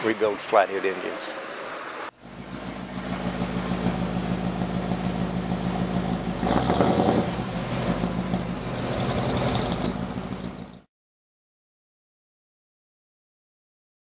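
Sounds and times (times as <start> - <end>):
car engine idling: 2.1 - 10.9
exhaust burst: 2.2 - 10.7.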